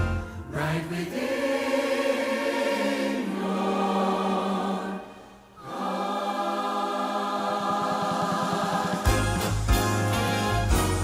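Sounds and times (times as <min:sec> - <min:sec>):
choir singing held chords: 0:00.0 - 0:11.0
orchestral accompaniment: 0:08.6 - 0:11.0.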